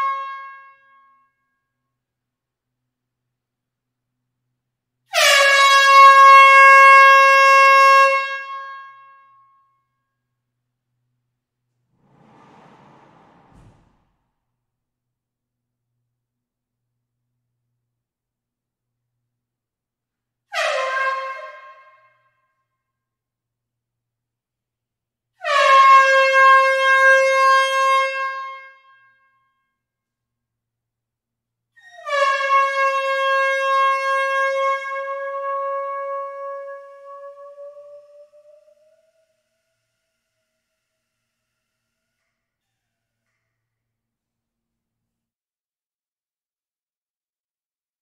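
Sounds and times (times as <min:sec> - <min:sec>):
air horn blast in hall: 0:05.1 - 0:09.1, 0:12.0 - 0:14.2, 0:20.5 - 0:22.2, 0:25.4 - 0:29.0, 0:32.1 - 0:42.4.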